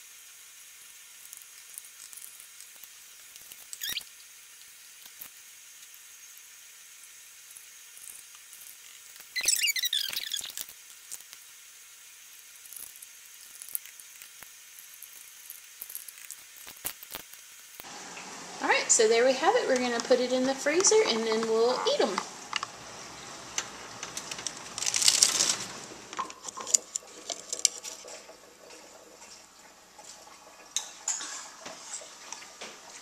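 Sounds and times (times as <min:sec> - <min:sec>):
wet squelches: 0:01.2 - 0:04.2, 0:08.0 - 0:11.4
squeaky plastic scrapes: 0:03.7 - 0:04.1, 0:08.8 - 0:10.8.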